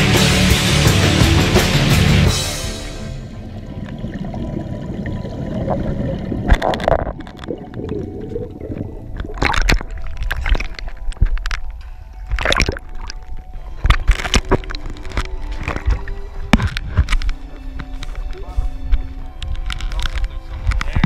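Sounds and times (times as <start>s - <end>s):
muffled underwater gurgling: 3.4s - 19.2s
water splashing against camera: 3.5s - 21.0s.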